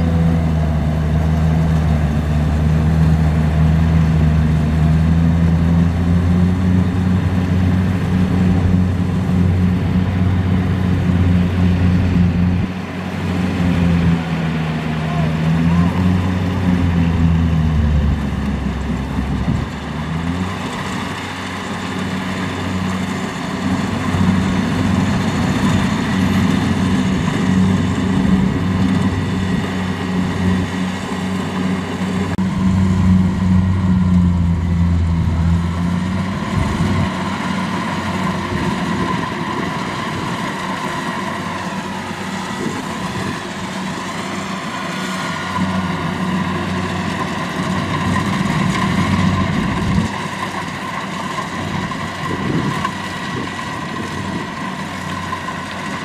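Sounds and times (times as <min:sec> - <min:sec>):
combine harvester engine and threshing: 0:00.0 - 0:56.0.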